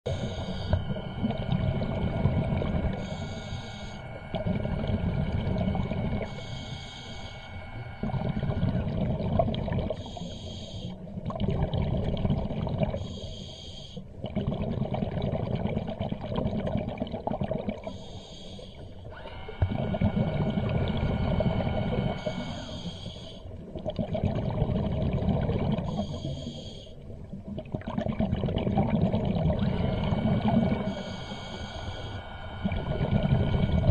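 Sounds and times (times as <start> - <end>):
scuba breathing through regulator: 0.1 - 8.1, 9.9 - 11.1, 12.9 - 14.1, 17.8 - 23.6, 25.8 - 27.0, 29.6 - 33.9
faint steady whine: 0.1 - 33.9.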